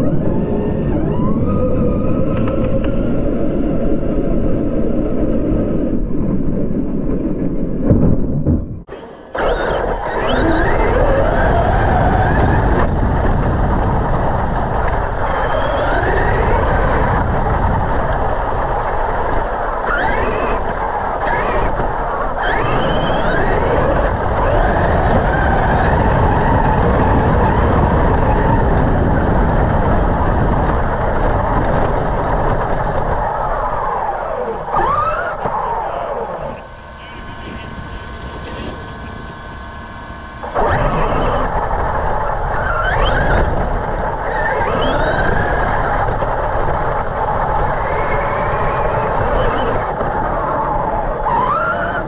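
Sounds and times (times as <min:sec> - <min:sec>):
electric motors whining: 0:08.8 - 0:52.0
loud rushing noise: 0:31.8 - 0:45.1.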